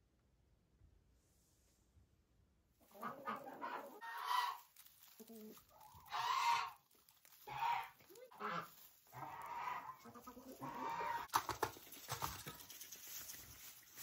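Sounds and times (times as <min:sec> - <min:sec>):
chickens clucking: 0:02.8 - 0:14.0.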